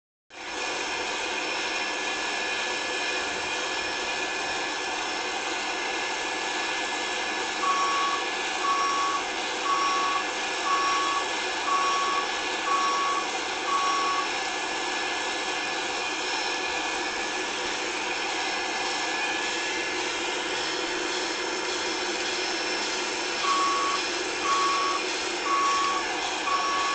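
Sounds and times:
steady engine noise: 0:00.4 - 0:26.9
reversing alarm beeping: 0:07.4 - 0:15.0, 0:22.5 - 0:26.9.

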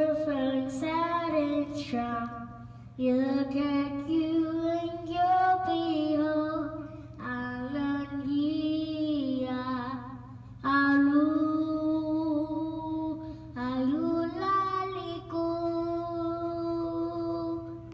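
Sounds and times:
child singing into microphone: 0:00.0 - 0:17.9
low electrical hum: 0:00.0 - 0:17.9.

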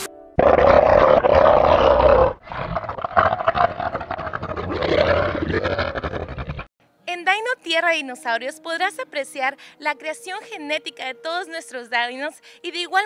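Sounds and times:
dinosaur roars: 0:00.4 - 0:06.7.

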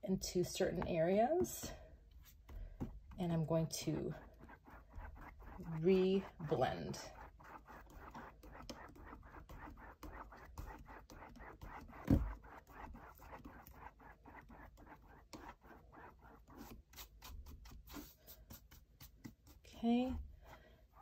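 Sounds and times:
brush strokes on canvas: 0:03.9 - 0:19.7.

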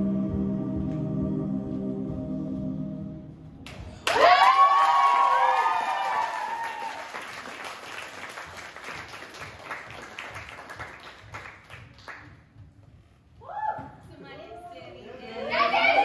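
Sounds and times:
audience clapping: 0:03.6 - 0:12.5
whoops and shouts: 0:04.0 - 0:07.2, 0:13.4 - 0:14.0.

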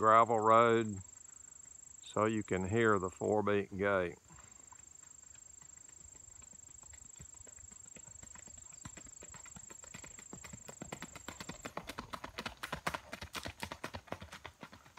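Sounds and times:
hoofbeats on gravel: 0:04.3 - 0:14.9.

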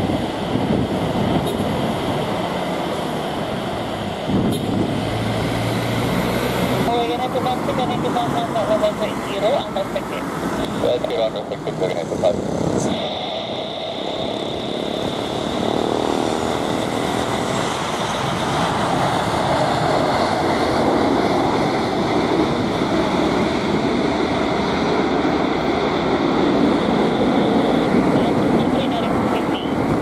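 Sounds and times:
jet engines at high power: 0:00.0 - 0:30.0.

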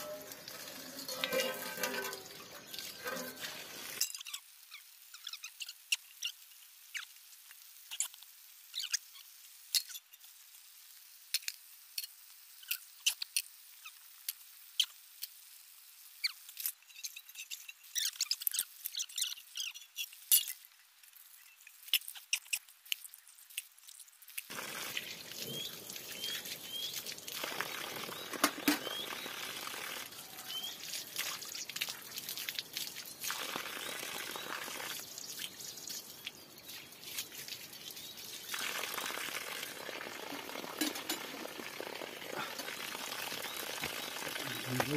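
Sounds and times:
steel dishes clinking: 0:00.0 - 0:04.2, 0:40.8 - 0:41.3
water splashing from hose: 0:00.0 - 0:44.9.

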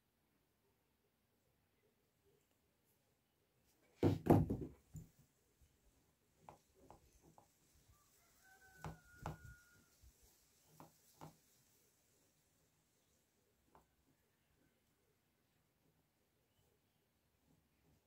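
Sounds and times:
soft knocks and taps: 0:06.4 - 0:07.7, 0:08.7 - 0:09.6, 0:10.6 - 0:11.6.

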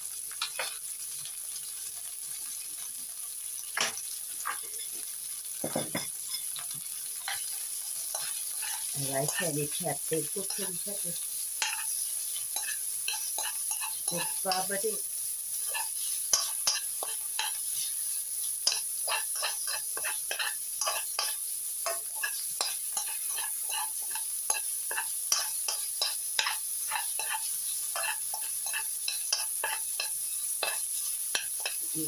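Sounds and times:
hot oil sizzling: 0:00.0 - 0:32.0
metal spatula scraping a wok: 0:07.2 - 0:09.6, 0:10.2 - 0:10.8, 0:11.6 - 0:15.0, 0:15.6 - 0:32.0.

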